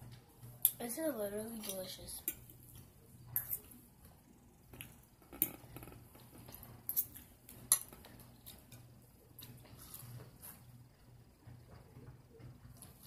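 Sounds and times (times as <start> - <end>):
person eating: 2.4 - 10.7.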